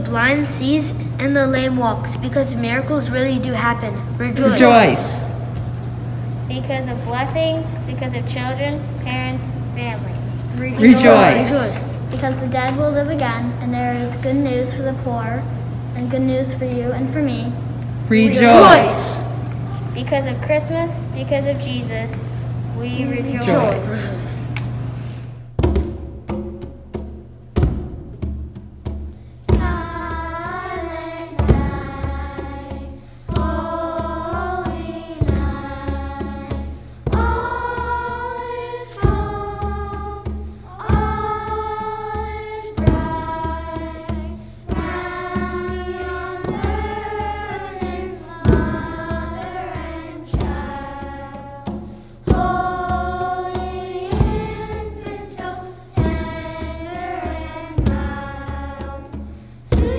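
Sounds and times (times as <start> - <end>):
children's choir singing: 4.4 - 5.6, 10.8 - 12.2, 18.1 - 20.0, 23.0 - 24.6, 29.6 - 59.9
hand drums beating: 25.6 - 59.9.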